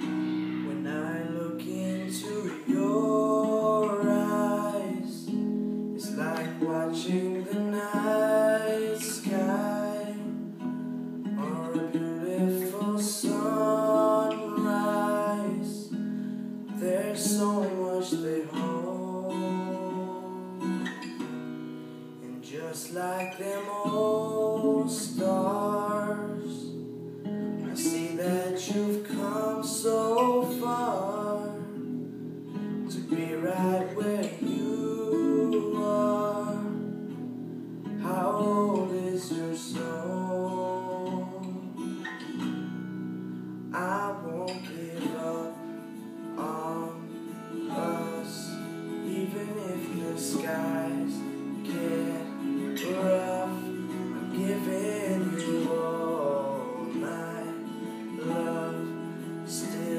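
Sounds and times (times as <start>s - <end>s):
young man singing a ballad: 0.0s - 21.3s, 22.2s - 26.8s, 27.6s - 32.0s, 32.8s - 37.2s, 37.8s - 42.4s, 43.7s - 59.9s
strummed acoustic guitar: 0.0s - 59.9s.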